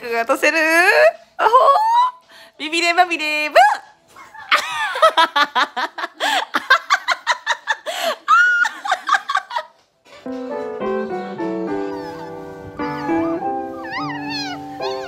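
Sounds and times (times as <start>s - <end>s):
music: 0.0s - 15.0s
woman laughing hard: 4.2s - 9.8s.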